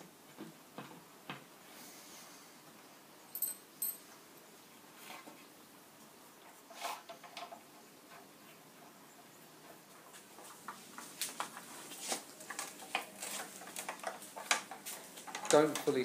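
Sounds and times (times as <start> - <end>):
wooden knocks and clicks: 12.5 - 15.9.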